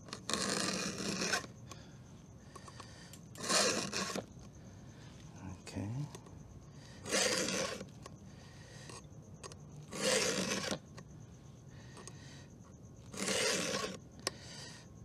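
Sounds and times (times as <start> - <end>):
file rasping on saw chain: 0.0 - 1.6, 3.4 - 4.3, 7.0 - 7.9, 8.9 - 10.9, 13.0 - 14.0.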